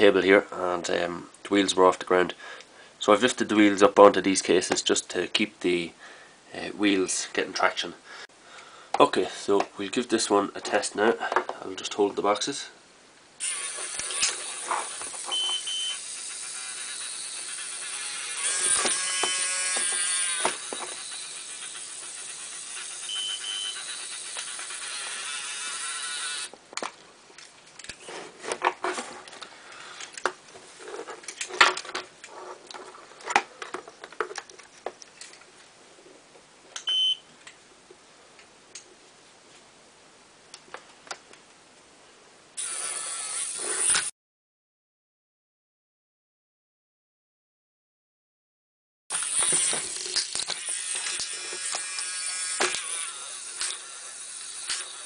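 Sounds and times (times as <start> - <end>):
toy motor and gearbox whining: 13.4 - 26.6, 42.6 - 44.1, 49.1 - 55.0.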